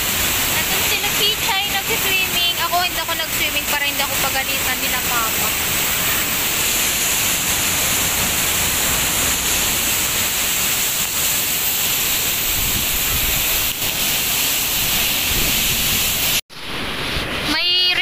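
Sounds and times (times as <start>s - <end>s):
waterfall rushing: 0.0s - 17.5s.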